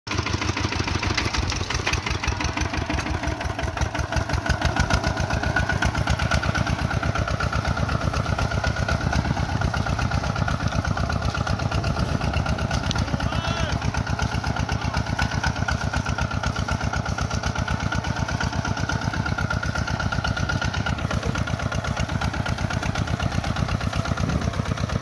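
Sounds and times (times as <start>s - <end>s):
diesel engine exhaust beats: 0.1s - 25.0s.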